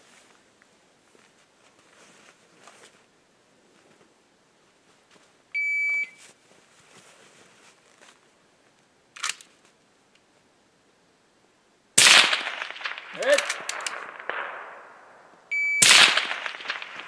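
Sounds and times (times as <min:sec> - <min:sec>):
electronic timer beep: 0:05.6 - 0:06.2, 0:15.5 - 0:15.8.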